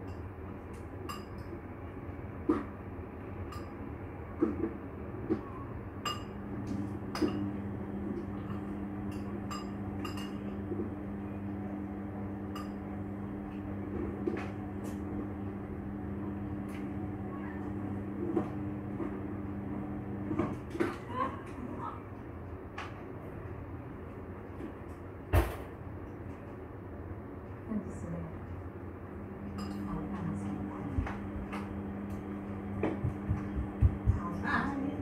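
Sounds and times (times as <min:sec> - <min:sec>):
steady hum: 0:06.0 - 0:22.0, 0:27.7 - 0:35.0.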